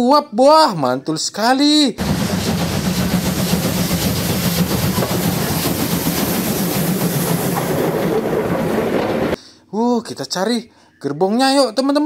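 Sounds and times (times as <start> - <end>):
steam hiss: 2.0 - 9.4
steam locomotive rumbling on rails: 2.0 - 9.4.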